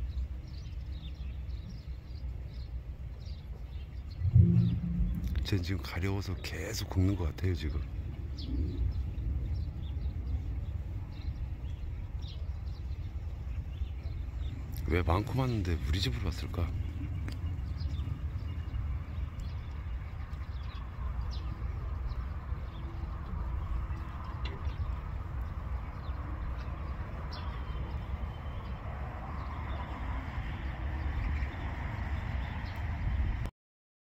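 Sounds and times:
low rumble: 0:04.2 - 0:06.4.

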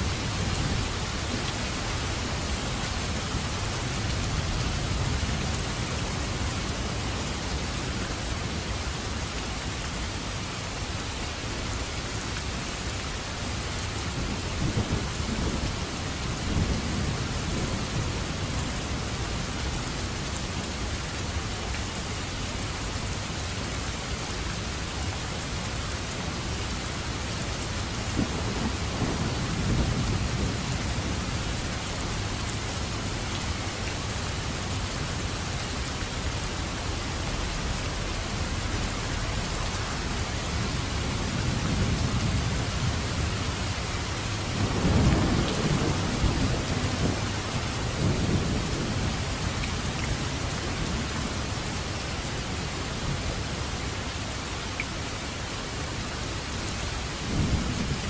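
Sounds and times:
steady rain falling: 0:00.0 - 0:58.0
low thunder rumbling: 0:14.0 - 0:20.0, 0:27.6 - 0:35.5, 0:36.1 - 0:51.6, 0:57.2 - 0:58.0.

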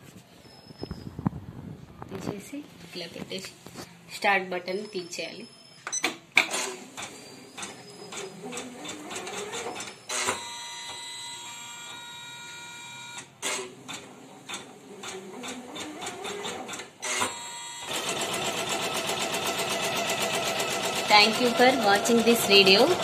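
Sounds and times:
embroidery machine stitching: 0:06.4 - 0:10.5, 0:13.4 - 0:23.0
machine motors whirring and ticking: 0:06.4 - 0:23.0.

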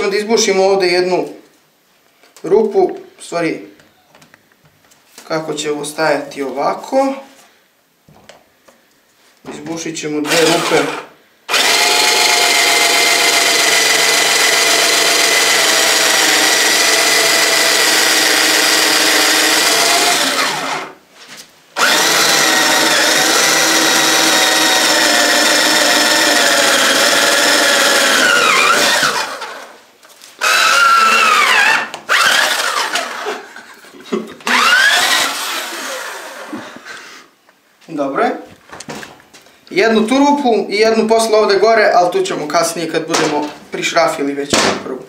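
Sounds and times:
cordless drill boring cardboard: 0:10.2 - 0:21.0, 0:21.8 - 0:29.8, 0:30.4 - 0:33.5, 0:34.4 - 0:36.8.

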